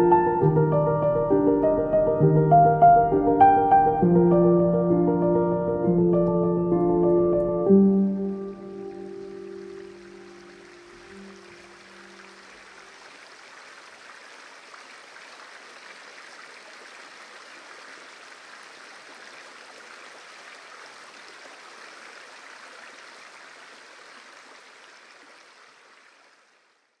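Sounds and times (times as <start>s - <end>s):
water rushing over rocks: 8.5s - 26.5s.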